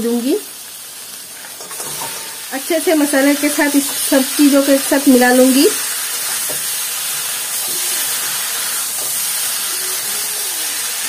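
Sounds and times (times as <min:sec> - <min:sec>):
spices sizzling in hot oil: 0:00.0 - 0:11.0
spatula stirring food: 0:01.3 - 0:11.0.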